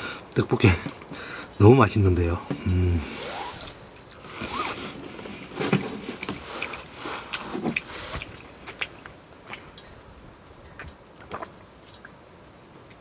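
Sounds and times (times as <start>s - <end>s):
chewing: 5.3s - 13.0s.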